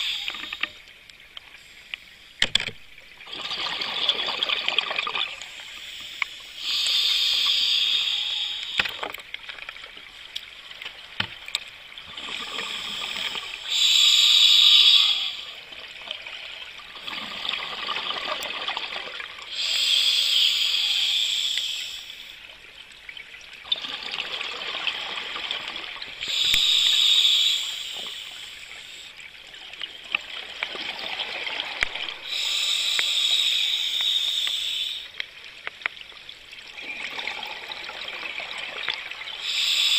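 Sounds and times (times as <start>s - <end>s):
regulator inhalation hiss: 0.0s - 0.8s, 5.4s - 8.9s, 12.2s - 15.6s, 19.5s - 22.4s, 26.2s - 29.2s, 32.2s - 35.2s, 39.4s - 39.9s.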